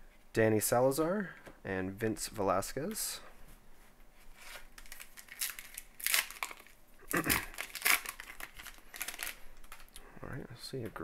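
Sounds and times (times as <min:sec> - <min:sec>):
wrapper crinkling: 0:04.4 - 0:10.0
wrapper ripping: 0:04.5 - 0:09.9.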